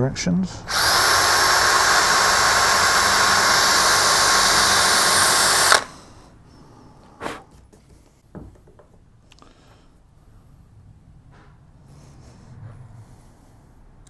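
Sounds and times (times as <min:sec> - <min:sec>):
cordless drill boring into wood: 0:00.7 - 0:06.0.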